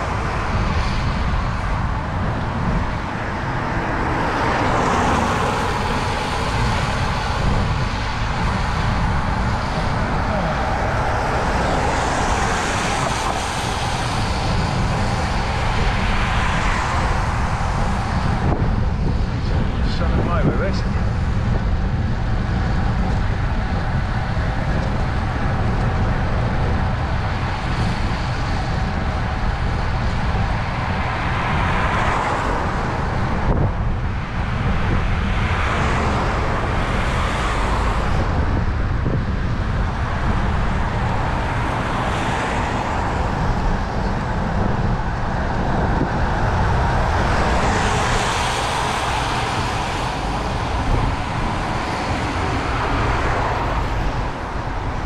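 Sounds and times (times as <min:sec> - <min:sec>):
steady low rumble: 0:00.0 - 0:55.0
vehicles passing: 0:00.0 - 0:55.0.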